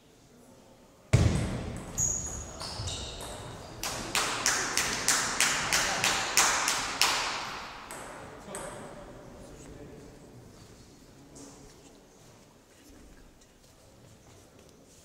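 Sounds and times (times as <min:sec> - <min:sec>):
spectators clapping in rhythm: 0:03.8 - 0:07.9.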